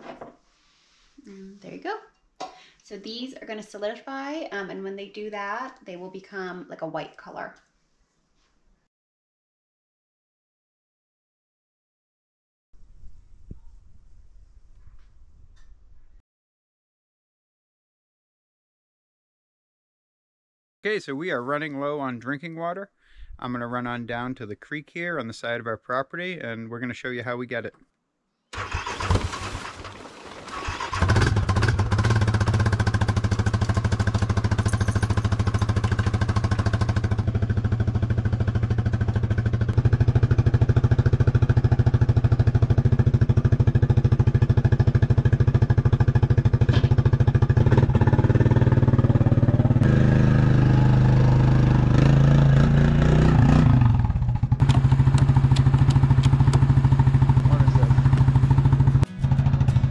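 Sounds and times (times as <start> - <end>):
small vehicle engine running: 30.5 - 59.9.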